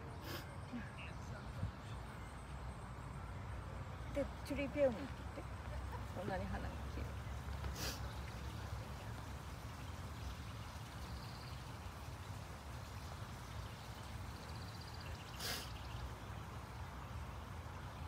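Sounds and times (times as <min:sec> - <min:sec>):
short hiss: 0:07.7 - 0:08.1, 0:15.3 - 0:15.8.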